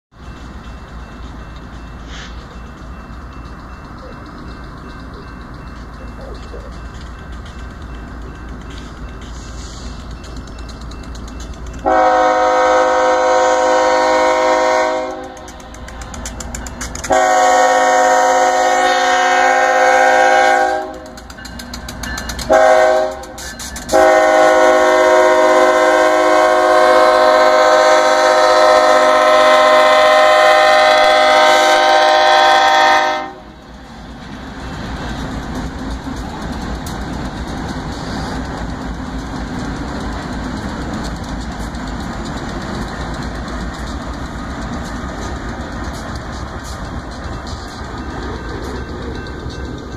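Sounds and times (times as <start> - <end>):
train wheels on rails: 0.1 - 49.9
locomotive air horn blasts: 11.8 - 15.4, 17.1 - 21.1, 22.5 - 33.5.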